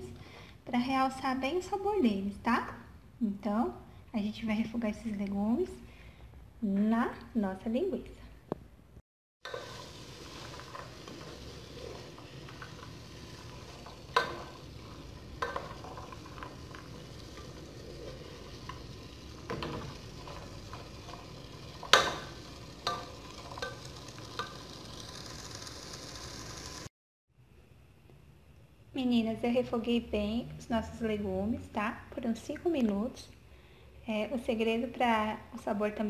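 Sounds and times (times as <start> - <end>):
vegetables sizzling in fat: 9.4 - 26.9
spoon scraping vegetables: 9.5 - 25.5.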